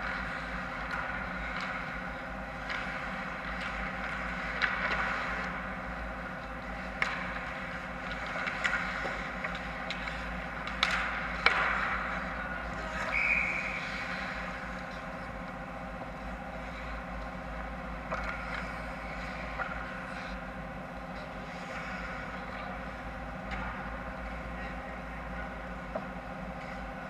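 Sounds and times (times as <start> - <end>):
steady hum: 0.0 - 27.0
hockey sticks clattering on ice: 2.6 - 5.7, 6.6 - 15.2, 18.1 - 20.3.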